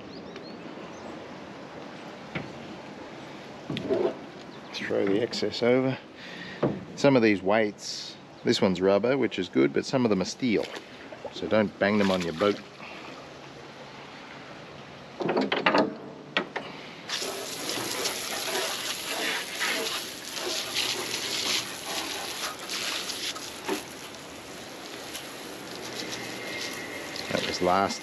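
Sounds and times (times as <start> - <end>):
water jet spraying: 17.1 - 28.0.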